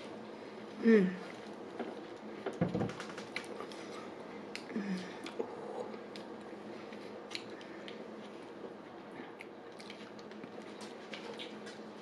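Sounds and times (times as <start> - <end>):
faint low hum: 0.0 - 12.0
chewing bread: 3.1 - 12.0.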